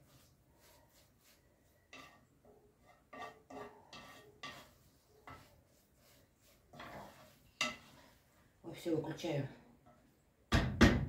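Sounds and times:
utensil knocking and scraping a pan: 0.0s - 8.4s.

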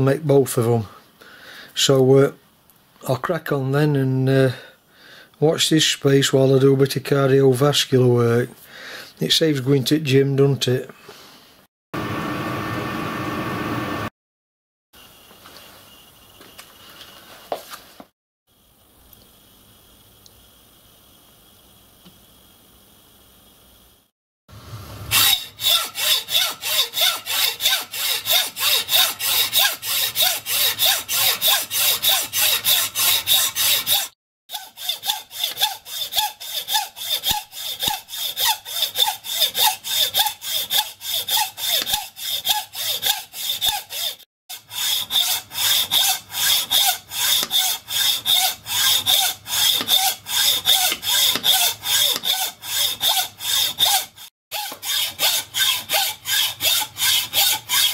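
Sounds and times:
hacksaw cutting metal: 25.1s - 57.9s.

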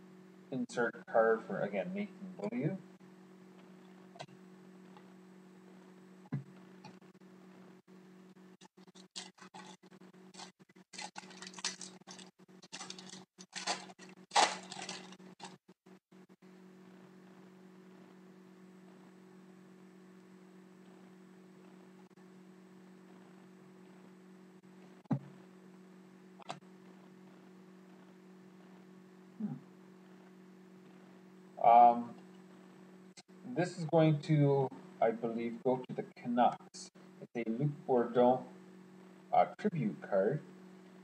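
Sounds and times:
low electrical hum: 0.0s - 41.0s
foil wrapper crinkling and tearing: 8.9s - 15.6s.

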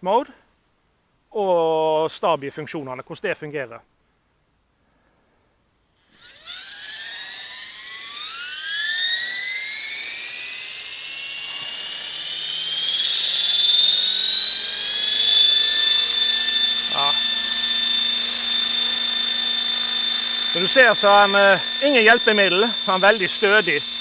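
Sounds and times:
electric motor and rotor whine: 6.0s - 24.0s.

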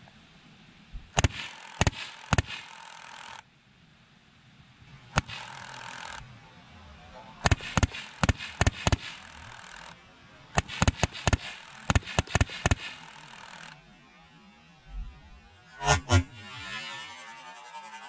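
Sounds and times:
rapid small gunshots: 1.1s - 3.4s, 5.1s - 6.4s, 7.4s - 13.8s
hissing mechanical whirr: 4.9s - 13.8s.

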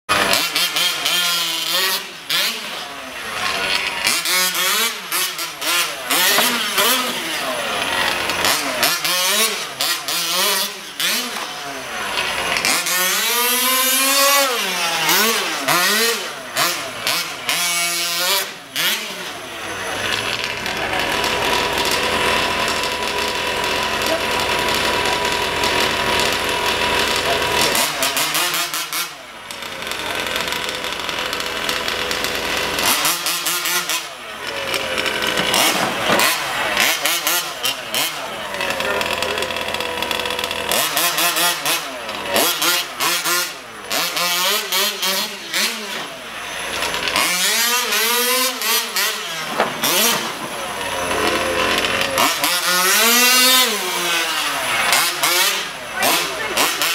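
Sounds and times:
model truck engine revving: 0.0s - 56.9s.

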